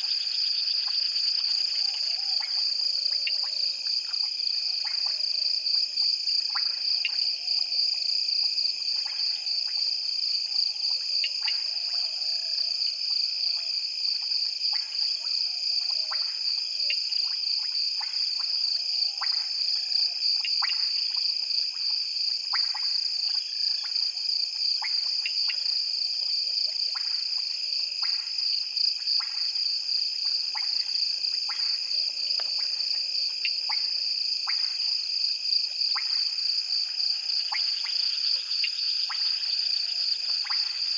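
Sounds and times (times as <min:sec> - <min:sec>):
frogs clicking: 0:19.1 - 0:21.9
high-pitched insect trill: 0:35.9 - 0:40.9.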